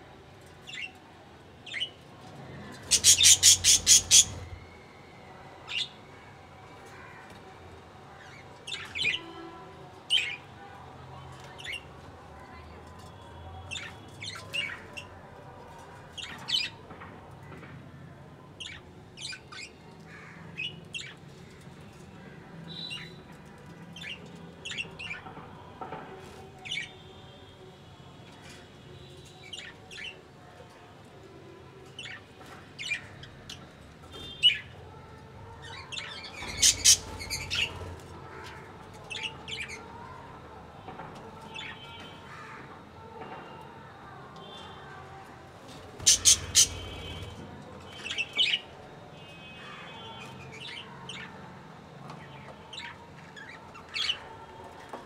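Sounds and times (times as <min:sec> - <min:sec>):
budgerigars chirping and squawking: 0:02.9 - 0:04.6, 0:36.4 - 0:37.8, 0:46.0 - 0:47.1.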